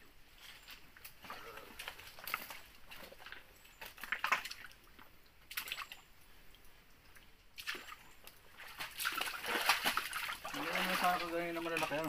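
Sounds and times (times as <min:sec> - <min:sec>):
water splashing in rocky stream: 0:02.1 - 0:04.8, 0:05.4 - 0:06.1, 0:07.6 - 0:12.0.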